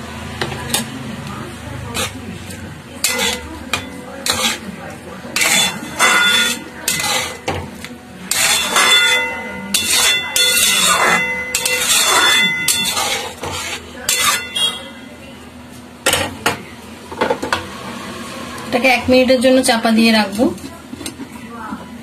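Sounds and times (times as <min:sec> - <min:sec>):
metal spatula scraping metal pan: 0:01.7 - 0:15.1.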